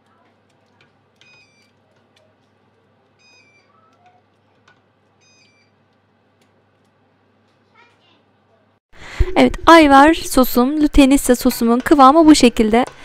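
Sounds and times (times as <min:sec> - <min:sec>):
stirring thick sauce in a pot: 0:00.0 - 0:07.0.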